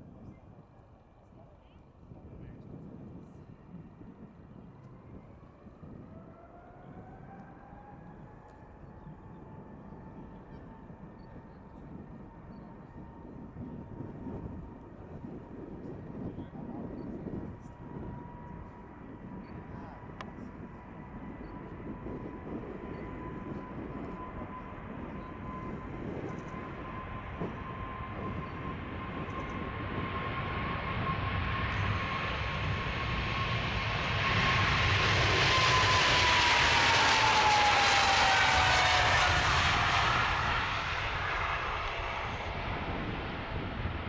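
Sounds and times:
high jet engine whine: 0:00.0 - 0:44.0
jet engines rumbling on takeoff: 0:00.0 - 0:44.0.

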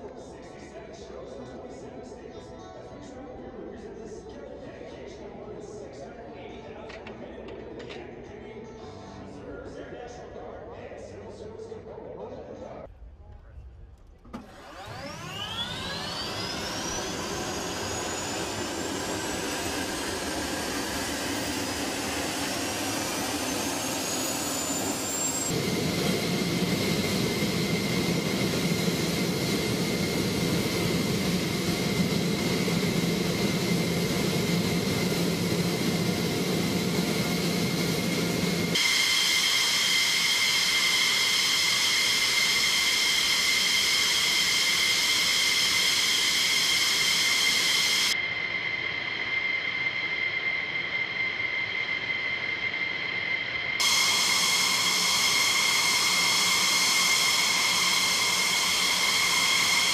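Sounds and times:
jet engine turbine whine: 0:14.2 - 0:59.9.

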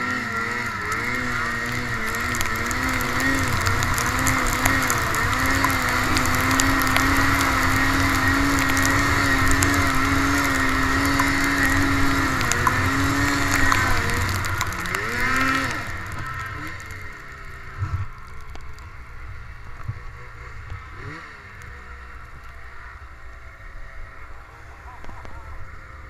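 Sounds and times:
snowmobile engine revving: 0:00.0 - 0:26.0.

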